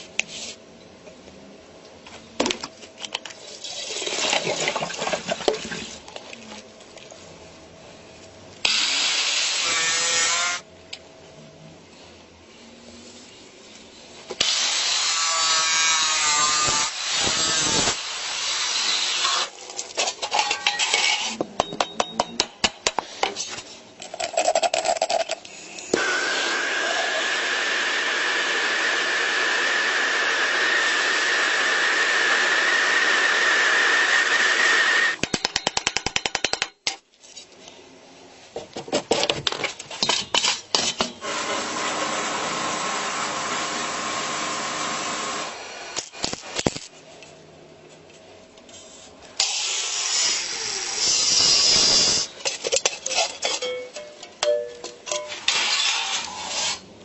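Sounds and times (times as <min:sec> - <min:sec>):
power tool cutting and grinding: 0:08.7 - 0:10.6, 0:14.4 - 0:19.6, 0:26.0 - 0:35.2, 0:41.2 - 0:46.6, 0:49.4 - 0:52.3
sandblasting hiss: 0:14.4 - 0:19.5, 0:49.4 - 0:52.4
steady hiss with high whine: 0:49.1 - 0:52.5.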